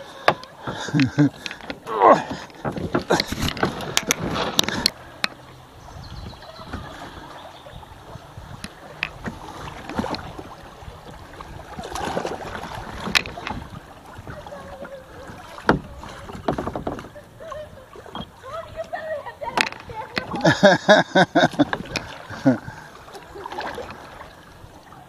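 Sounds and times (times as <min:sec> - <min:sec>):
paddle splashing: 0:00.0 - 0:25.0
water rushing past hull: 0:00.0 - 0:25.0.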